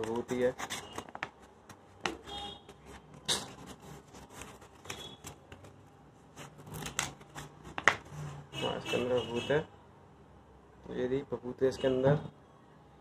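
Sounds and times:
paper crinkling and rustling: 0.0 - 8.4.

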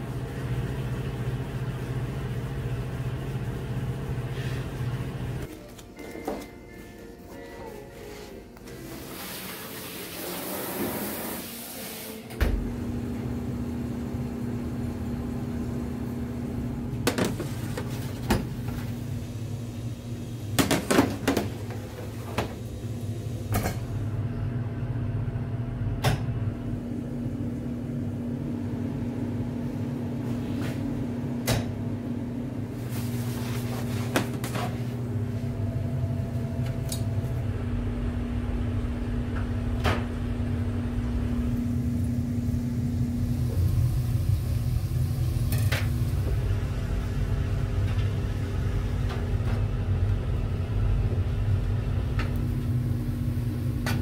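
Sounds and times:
kitchen machine humming: 0.0 - 54.0.

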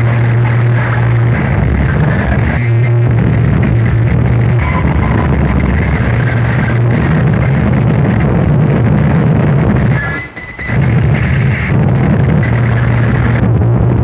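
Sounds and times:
steady low hum: 0.0 - 10.0
harsh distorted noise music: 0.0 - 14.0.

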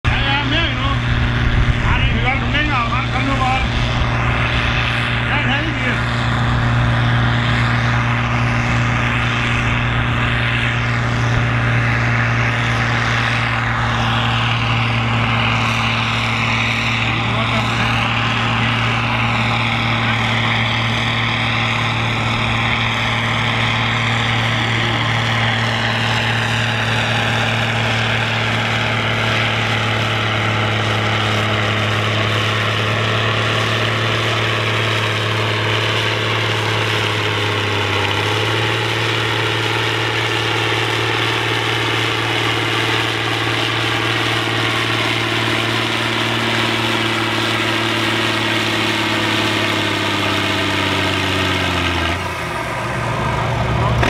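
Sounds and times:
tractor diesel engines idling: 0.0 - 54.0.

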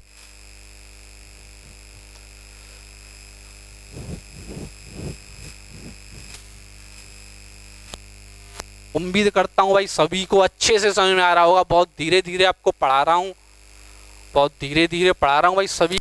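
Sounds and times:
electrical hum: 0.0 - 16.0
cloth wiping whiteboard: 3.9 - 6.3.

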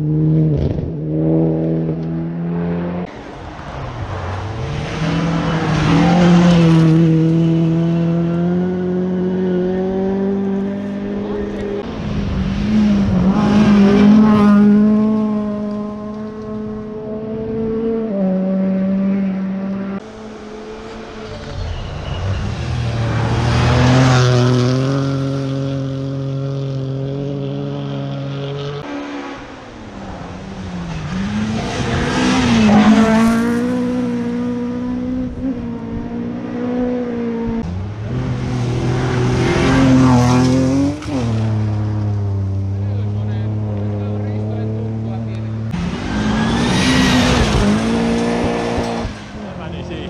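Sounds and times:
rally cars revving past: 0.0 - 50.0.

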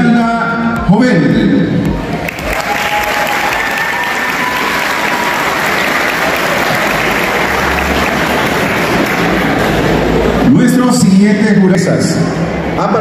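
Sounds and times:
audience applauding: 2.2 - 10.4.

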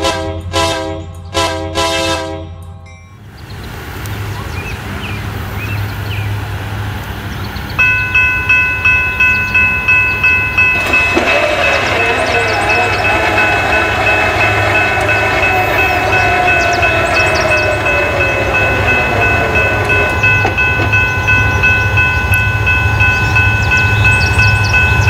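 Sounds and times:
train horn blasts: 0.0 - 2.8, 10.6 - 22.8
freight train approaching: 0.0 - 25.0
railroad crossing bell ringing: 2.4 - 3.4, 7.2 - 25.0
birds chirping: 2.9 - 25.0.

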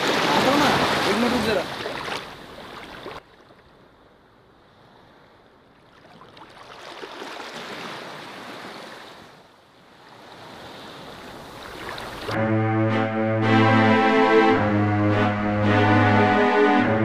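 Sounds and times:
sea surf washing on beach: 0.0 - 3.0.

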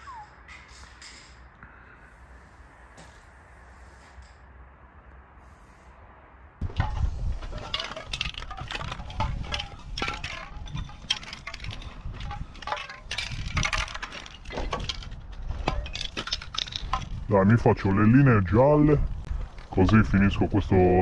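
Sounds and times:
metal cans clinking together: 6.6 - 17.2.

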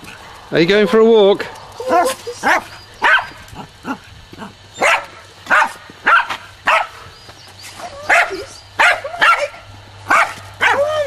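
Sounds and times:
dog barking: 1.8 - 4.0, 4.8 - 7.0, 8.0 - 11.0.

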